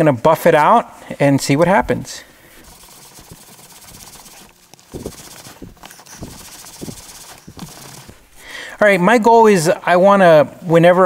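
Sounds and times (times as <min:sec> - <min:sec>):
rhythmic rubbing strokes: 0:02.1 - 0:08.6
towel rubbing leather: 0:02.4 - 0:08.5.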